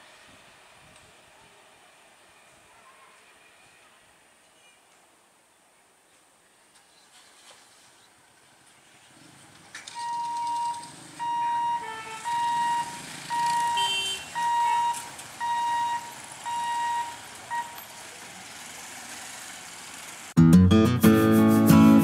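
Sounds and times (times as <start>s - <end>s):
faint traffic noise: 0.0s - 20.4s
electronic warning beeps: 10.0s - 17.9s
strummed acoustic guitar music: 20.4s - 22.0s.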